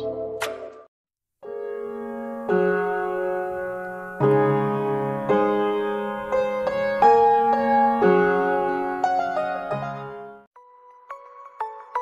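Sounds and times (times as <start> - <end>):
soft piano chords: 1.4 - 10.5.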